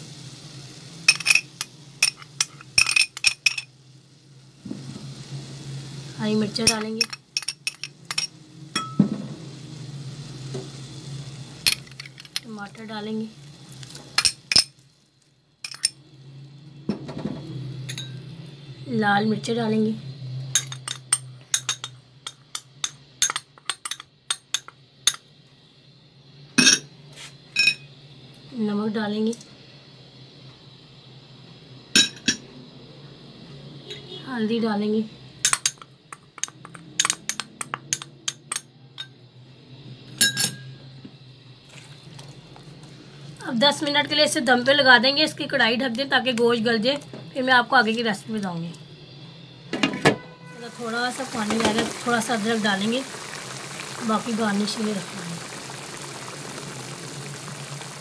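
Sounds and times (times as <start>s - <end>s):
metal spoon clinking on cookware: 1.1s - 3.7s, 6.6s - 9.0s, 15.7s - 16.0s, 20.6s - 25.2s, 35.4s - 39.2s, 40.2s - 40.7s
spoon clinking on cookware: 20.6s - 25.2s.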